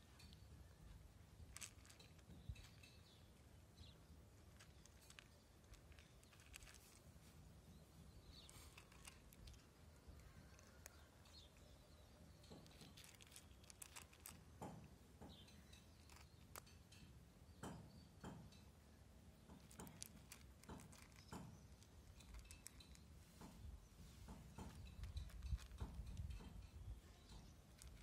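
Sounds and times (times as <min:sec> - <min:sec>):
cat crunching dry kibble: 0:01.3 - 0:02.9, 0:04.2 - 0:07.2, 0:08.2 - 0:11.8, 0:12.5 - 0:15.0, 0:19.6 - 0:23.1, 0:24.5 - 0:26.6, 0:27.4 - 0:28.0.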